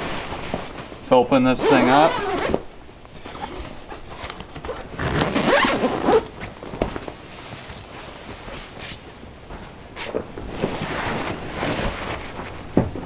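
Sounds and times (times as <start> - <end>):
zipper being pulled open: 1.6 - 2.6, 3.3 - 6.4.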